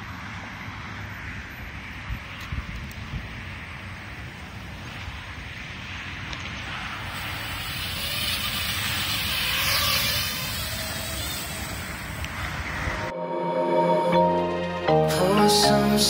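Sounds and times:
wind buffeting microphone: 0.0s - 13.1s
quadcopter propellers whining: 1.2s - 13.2s.

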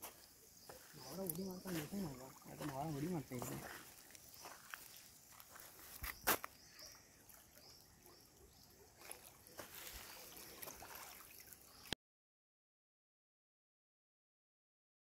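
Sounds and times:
rippling river hiss: 0.0s - 8.3s, 9.1s - 11.9s.

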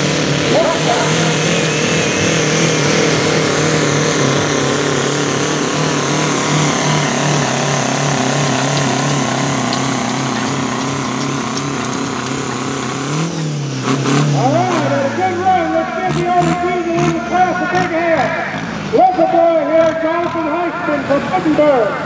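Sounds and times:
tractor engine running hard: 0.0s - 22.0s.

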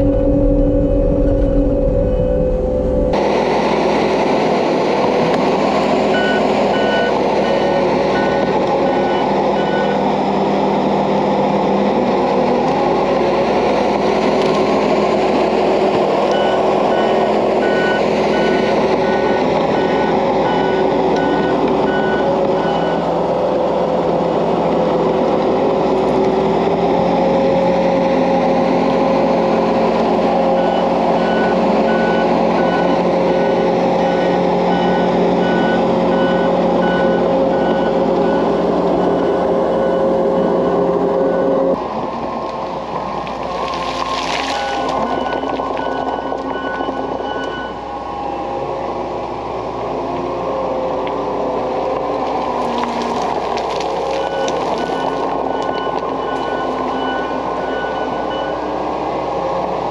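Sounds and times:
reversing alarm beeping: 0.0s - 3.2s, 6.1s - 10.0s, 16.3s - 23.1s, 30.5s - 41.8s, 44.5s - 48.4s, 54.2s - 58.8s
dozer loader diesel engine: 0.0s - 59.9s.

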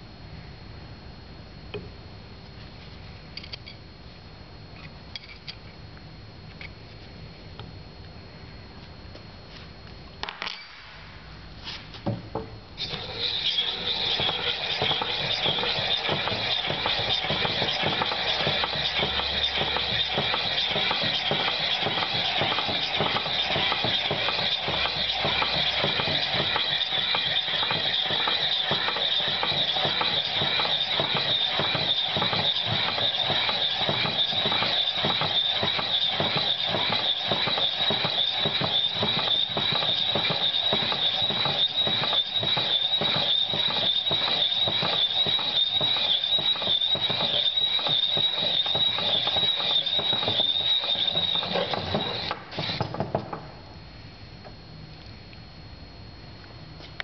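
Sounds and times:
flange facer whining: 12.3s - 57.0s.

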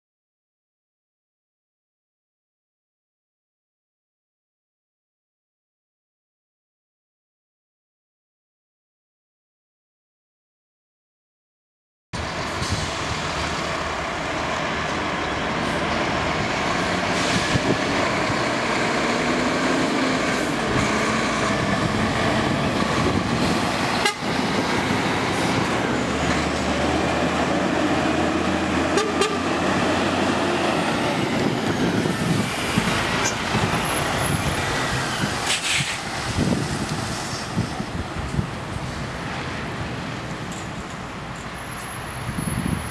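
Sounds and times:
trucks driving past: 12.2s - 42.9s
truck horn toot: 23.9s - 24.4s, 28.9s - 29.6s.

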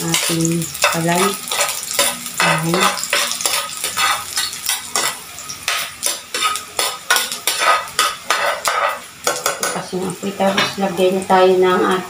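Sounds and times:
garlic sizzling in hot oil: 0.0s - 12.0s
spatula scraping pan bottom: 0.8s - 9.8s.

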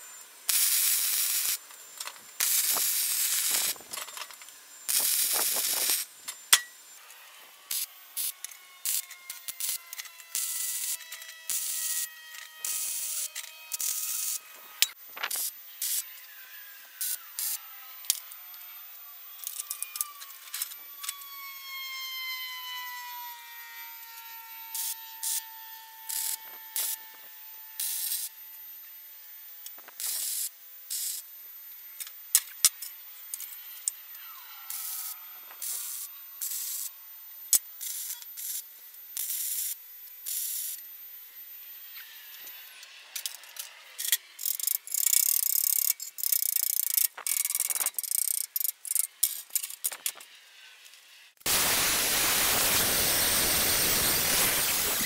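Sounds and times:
welder crackling: 0.5s - 6.8s, 7.7s - 18.3s, 24.7s - 28.4s, 29.6s - 31.3s, 34.7s - 40.8s, 41.9s - 55.0s.

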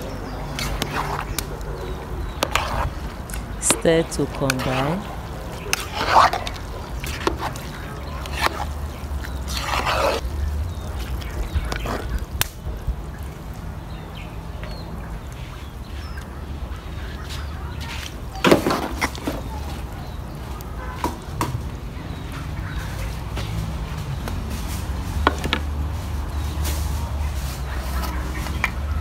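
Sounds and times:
rice stirred in metal pot: 0.0s - 12.4s.

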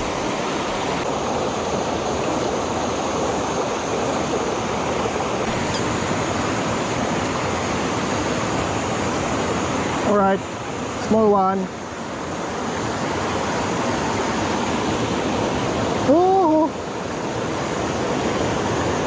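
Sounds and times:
creek rushing over boulders: 0.0s - 19.0s.

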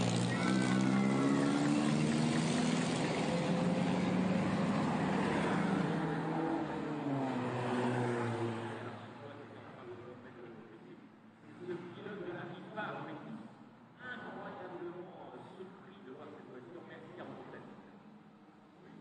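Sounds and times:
racing car engine passing by: 0.0s - 9.3s.

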